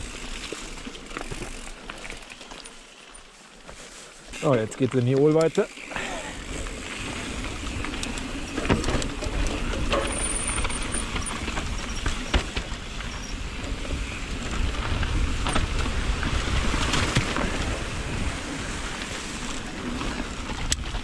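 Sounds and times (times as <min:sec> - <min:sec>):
bike clicks and rattles: 0:00.0 - 0:21.0
bike tyres on dirt: 0:00.0 - 0:21.0
wind rumbling on microphone: 0:06.3 - 0:21.0.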